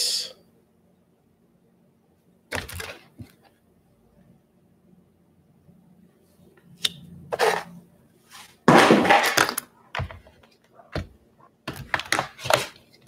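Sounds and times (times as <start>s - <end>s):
cards rustling: 11.7s - 13.0s.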